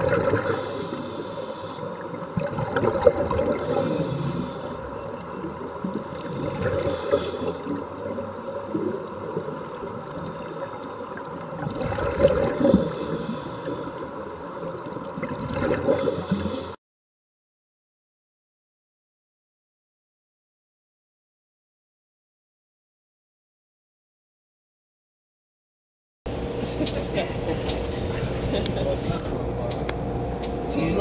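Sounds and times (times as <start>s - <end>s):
bubbling exhaled air: 0.0s - 5.0s, 6.2s - 7.9s, 11.6s - 14.0s, 15.2s - 16.8s
divers breathing through regulators: 0.4s - 1.9s, 3.6s - 4.9s, 6.8s - 7.8s, 12.6s - 14.0s, 16.0s - 16.8s.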